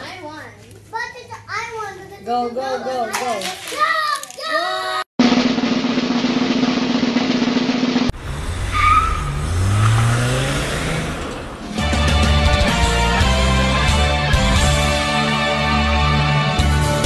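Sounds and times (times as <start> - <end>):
race car engine rising in pitch: 8.1 - 12.6.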